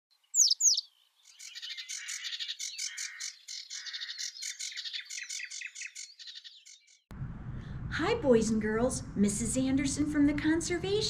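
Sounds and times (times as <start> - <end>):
birds chirping and twittering: 0.1 - 7.1.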